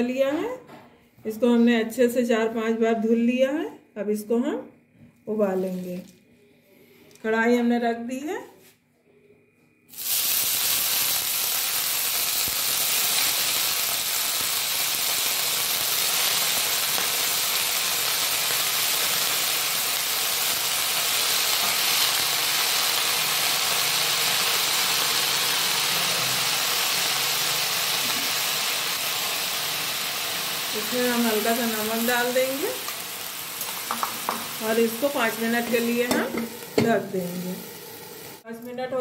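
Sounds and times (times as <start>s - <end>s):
leaves sizzling in hot pan: 5.4s - 6.1s, 9.9s - 38.7s.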